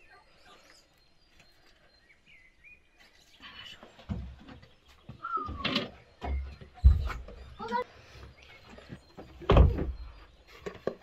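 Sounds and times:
faint bird chirps: 0.0s - 11.0s
low bumps at a door: 9.2s - 10.0s.

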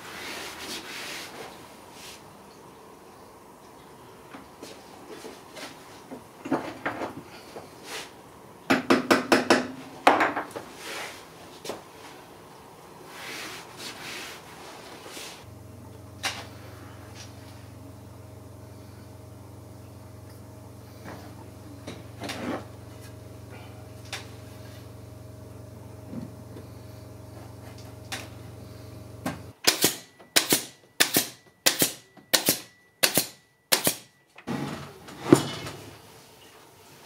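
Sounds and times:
workshop hum: 0.0s - 37.0s.

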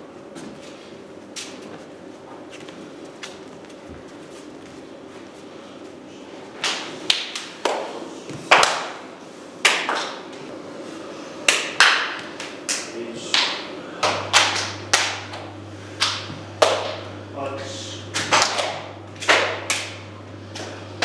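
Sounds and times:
sharp echoing slaps: 6.6s - 7.9s, 8.5s - 9.0s, 9.6s - 10.2s, 11.5s - 15.4s, 16.0s - 17.1s.

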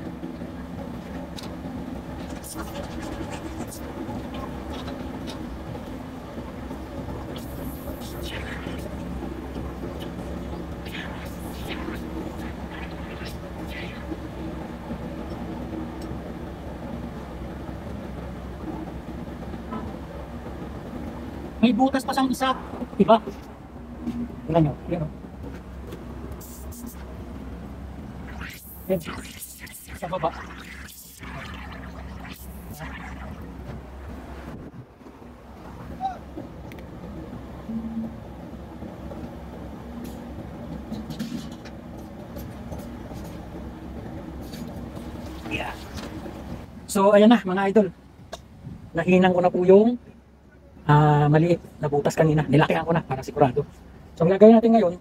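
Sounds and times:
machine humming: 0.0s - 21.6s, 26.1s - 34.6s
water splashing: 7.2s - 14.3s, 28.2s - 34.3s.

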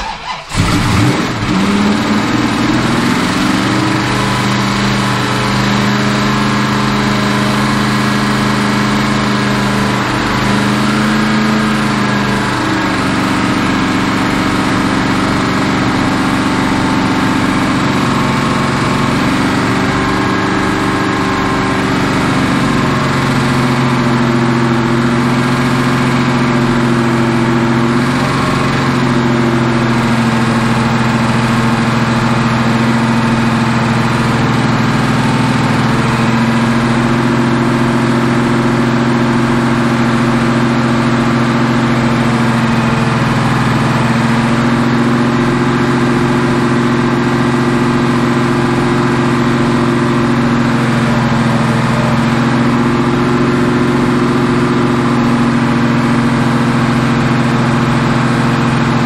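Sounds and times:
engine running steadily: 0.0s - 59.0s.

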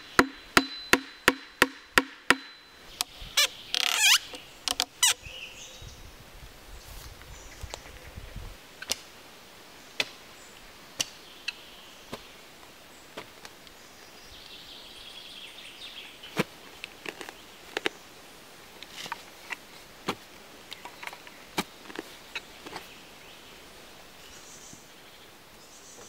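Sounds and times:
birds: 2.3s - 26.0s
hand shovel scraping dry soil: 18.8s - 20.4s.

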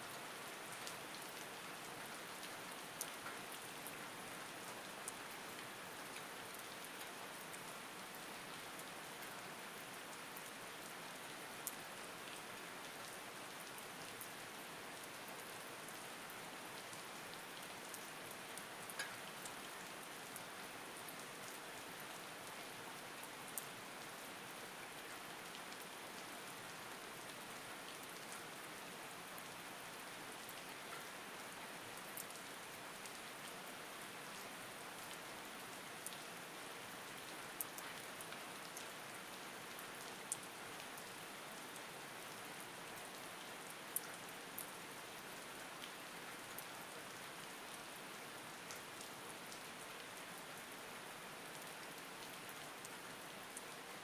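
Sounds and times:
steady rain falling: 0.0s - 54.0s
single raindrop ticks: 19.0s - 19.2s.

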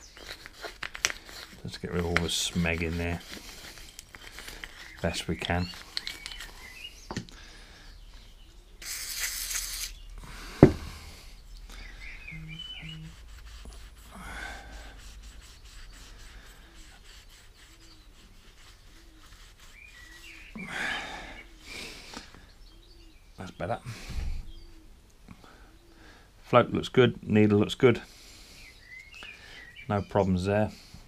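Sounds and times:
rag rubbing on metal: 0.0s - 6.4s, 12.4s - 20.6s
birds chirping: 0.0s - 8.9s, 9.7s - 31.0s
aerosol spray hissing: 8.8s - 10.0s.

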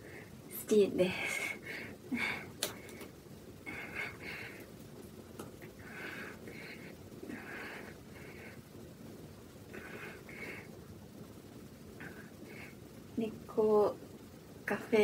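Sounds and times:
woman breathing: 0.0s - 4.8s, 5.6s - 8.8s, 9.6s - 10.9s, 12.0s - 13.0s.

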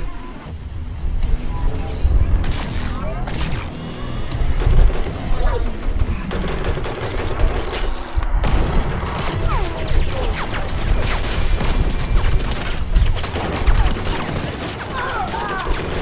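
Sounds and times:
bangs crashes and gunfire booms: 8.4s - 15.2s.

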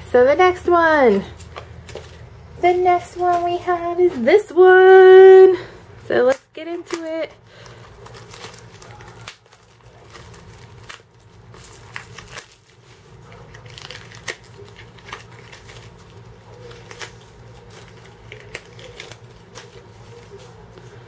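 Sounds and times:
cellophane crinkling: 1.1s - 21.0s
cardboard package tearing: 6.7s - 20.7s.

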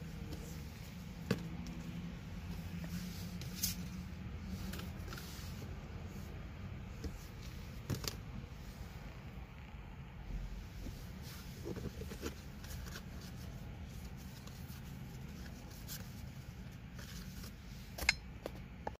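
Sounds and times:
low steady hum: 0.0s - 19.0s.

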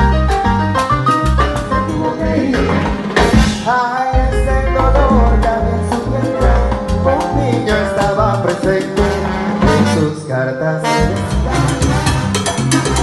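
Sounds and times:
salsa band playing: 0.0s - 13.0s
trombones playing: 4.2s - 13.0s
timbales and hand percussion: 11.3s - 13.0s.

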